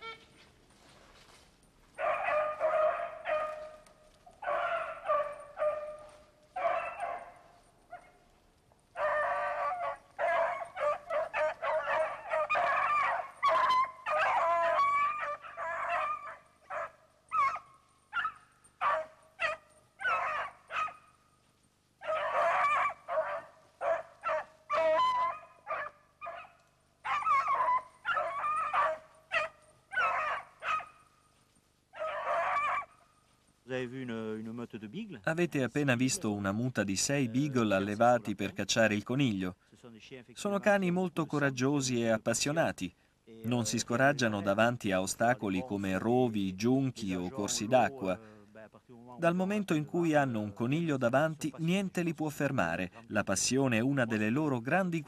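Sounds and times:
hounds baying: 1.9s - 21.3s, 22.0s - 33.6s, 43.6s - 48.2s.

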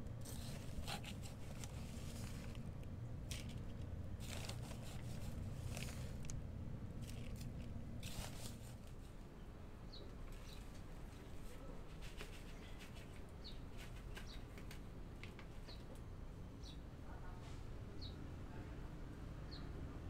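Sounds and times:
potting mix scraping and rustling: 0.0s - 9.2s, 10.3s - 15.9s
plastic bag crinkling: 0.2s - 6.4s, 7.0s - 9.0s.

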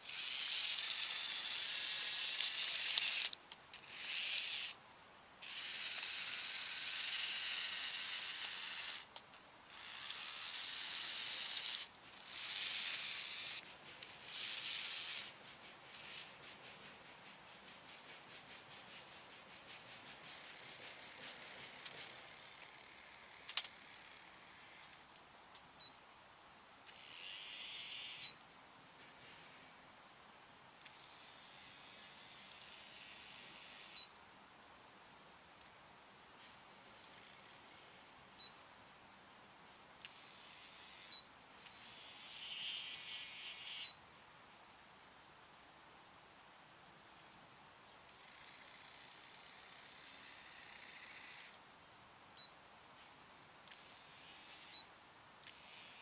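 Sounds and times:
small electric motor whining: 0.0s - 4.8s, 5.4s - 9.1s, 9.7s - 16.3s, 55.5s - 56.0s
high insect drone: 0.0s - 56.0s.

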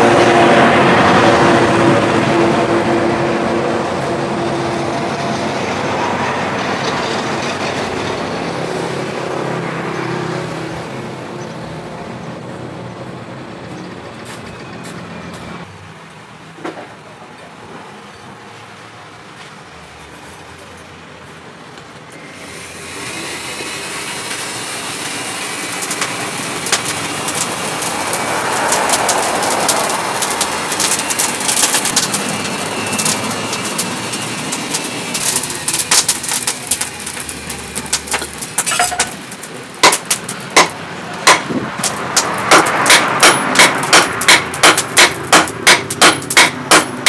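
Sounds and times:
scattered clicks and knocks: 25.8s - 47.0s
hammer striking steel on anvil: 39.8s - 47.0s.

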